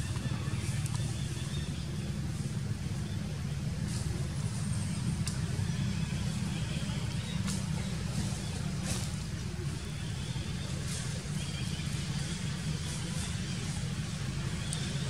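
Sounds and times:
steady low rumble: 0:00.0 - 0:15.0
faint clicks: 0:05.2 - 0:05.6.

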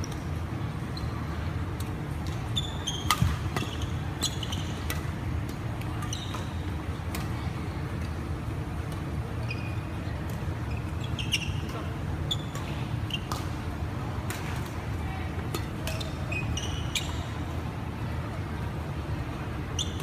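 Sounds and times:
racket hitting shuttlecock: 0:03.0 - 0:06.4.

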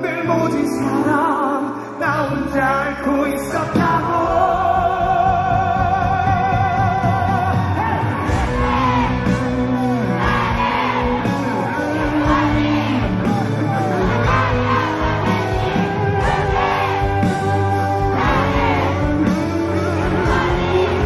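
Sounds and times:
rock band playing: 0:00.0 - 0:21.0
audience shouting and screaming: 0:07.0 - 0:21.0.

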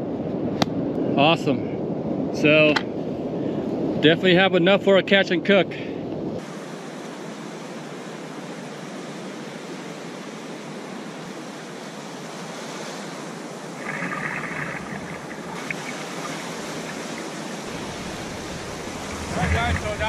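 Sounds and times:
ocean surf breaking: 0:06.4 - 0:20.0.

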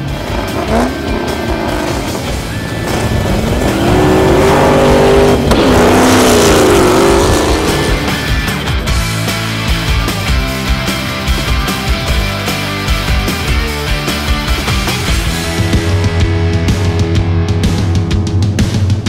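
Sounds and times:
drag racing cars revving: 0:00.0 - 0:09.6.

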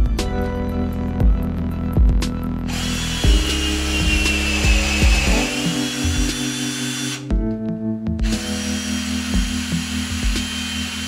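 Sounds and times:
background music with steady beat: 0:00.0 - 0:11.0
cordless drill motor whine: 0:02.7 - 0:07.3, 0:08.2 - 0:11.0.

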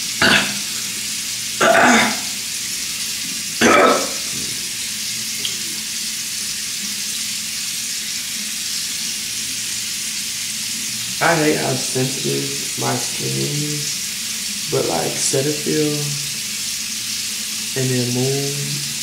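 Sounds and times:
water splashes: 0:00.0 - 0:06.0
sink tap running: 0:00.0 - 0:19.0.

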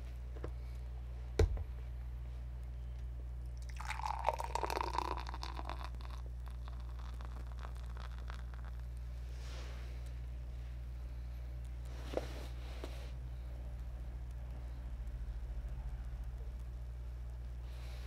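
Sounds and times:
beer glugging into glass: 0:03.6 - 0:08.3
beer foam fizzing: 0:03.6 - 0:08.6.

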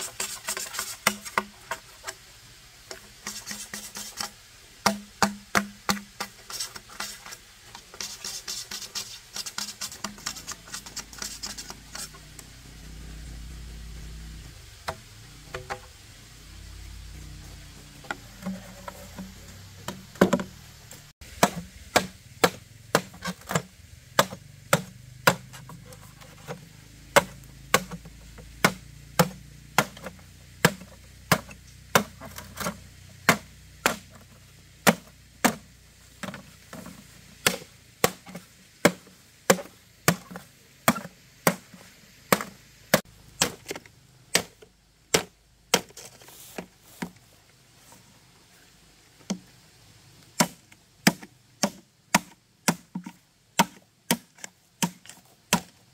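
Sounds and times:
blade chopping wood: 0:04.8 - 0:07.1, 0:21.3 - 0:26.6, 0:27.2 - 0:34.2, 0:34.8 - 0:42.6, 0:43.4 - 0:47.1, 0:50.4 - 0:55.8.

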